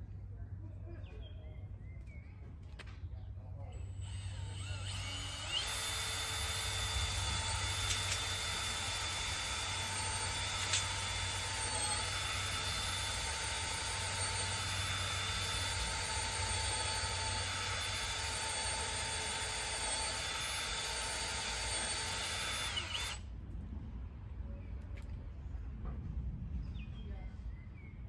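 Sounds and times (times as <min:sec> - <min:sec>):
cordless drill boring into wood: 0:03.9 - 0:23.2.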